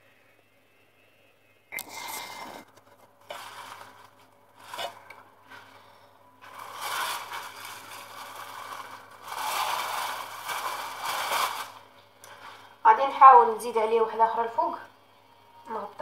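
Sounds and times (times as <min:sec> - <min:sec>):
baking paper rustling and scraping: 0:02.0 - 0:13.2.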